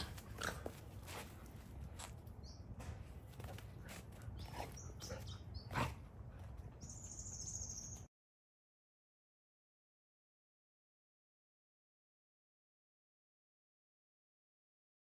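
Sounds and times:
birds chirping: 1.4 - 8.1.

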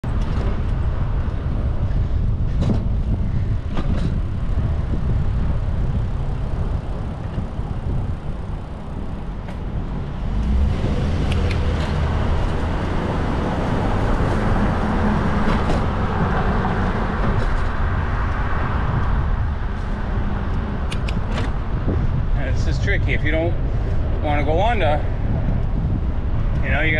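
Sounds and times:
city traffic rushing: 0.0 - 26.9.

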